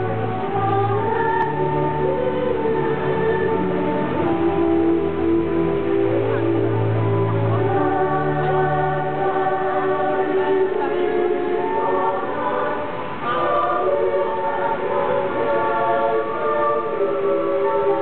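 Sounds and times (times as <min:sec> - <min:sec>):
choir singing: 0:00.0 - 0:18.0.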